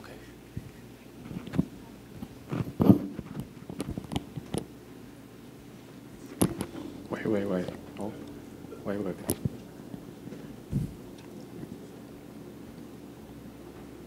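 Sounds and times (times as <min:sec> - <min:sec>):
microphone handling knocks: 0:10.7 - 0:11.0.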